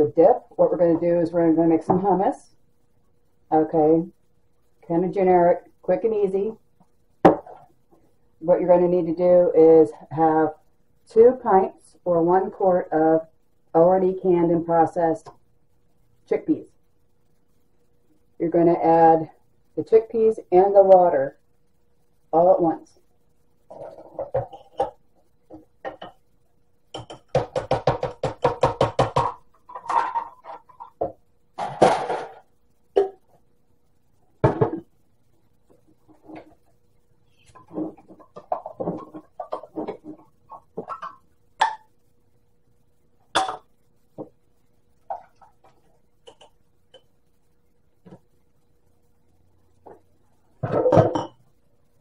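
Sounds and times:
chickpeas knocking and plopping: 0:26.9 - 0:29.4.

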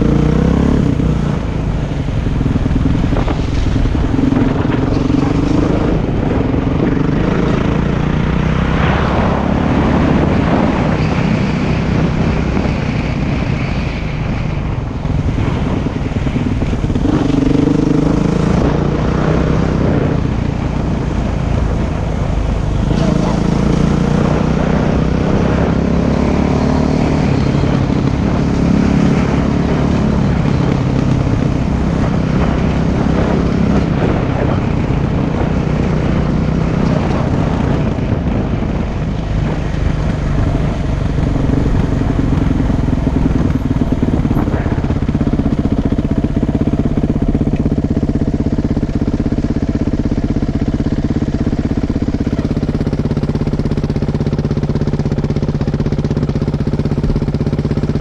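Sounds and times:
dirt bike engine revving: 0:00.0 - 0:13.5, 0:16.9 - 0:21.5.

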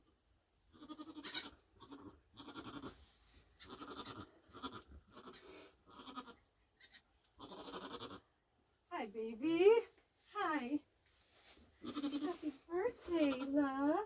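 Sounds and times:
goats bleating: 0:03.6 - 0:08.2, 0:11.8 - 0:12.4.

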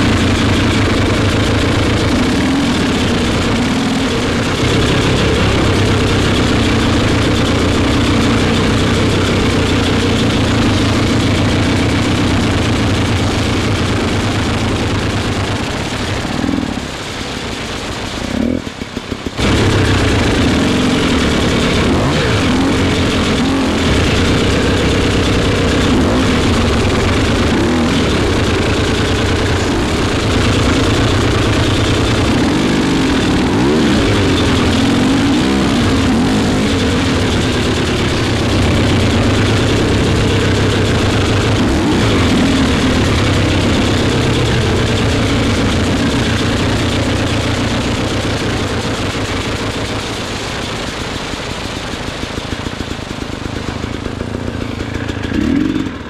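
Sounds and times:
vehicle engine revving: 0:00.0 - 0:56.0.

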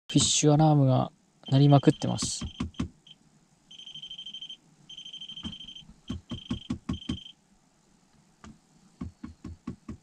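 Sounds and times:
fish finder alarm beeping: 0:01.4 - 0:07.4
dull knocks: 0:05.4 - 0:07.3.

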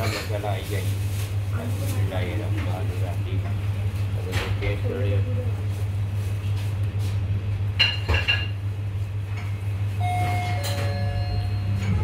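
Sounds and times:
faint held tone: 0:10.0 - 0:12.0.

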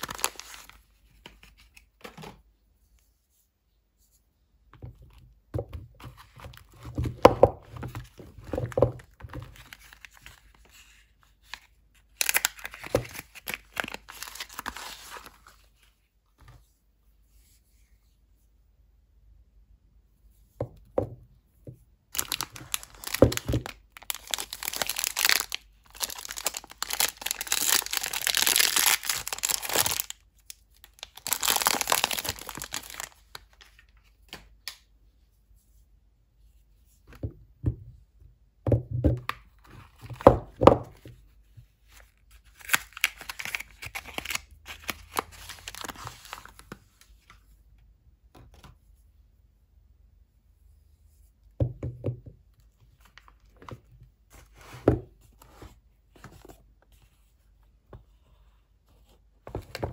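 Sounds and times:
wrappers tearing and crinkling: 0:00.0 - 0:00.7, 0:12.2 - 0:15.1, 0:22.2 - 0:30.2, 0:30.9 - 0:33.2, 0:42.6 - 0:46.6.

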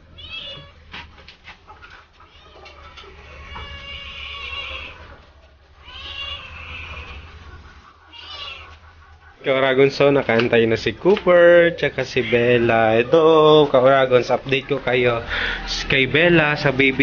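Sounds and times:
dog whining: 0:02.1 - 0:09.2.

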